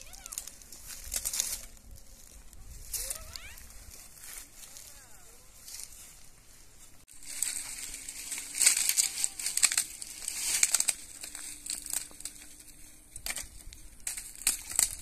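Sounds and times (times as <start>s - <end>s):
brittle material crackling and crunching: 0.0s - 3.6s, 7.1s - 15.0s.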